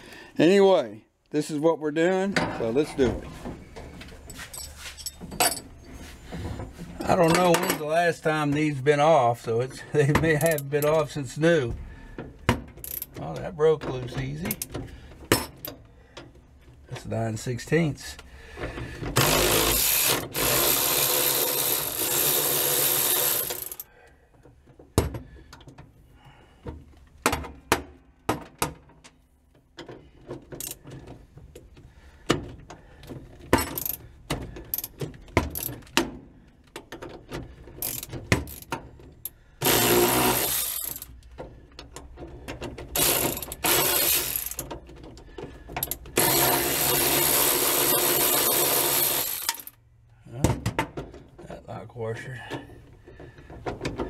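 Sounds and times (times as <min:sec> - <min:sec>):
metal clinks: 0:04.2 - 0:05.8
socket ratchet wrench ratcheting: 0:19.2 - 0:23.9, 0:37.8 - 0:38.8, 0:39.6 - 0:41.2, 0:43.0 - 0:44.7, 0:45.8 - 0:49.8.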